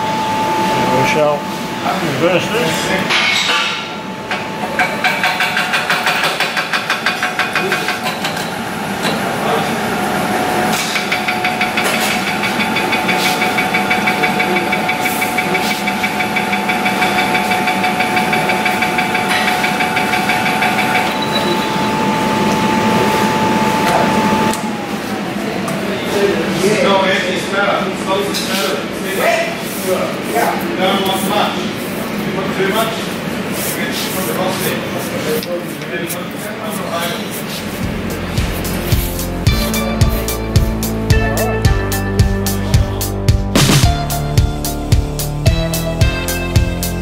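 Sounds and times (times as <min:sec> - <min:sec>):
milling machine motor whine: 0:00.0 - 0:03.1, 0:08.8 - 0:25.9.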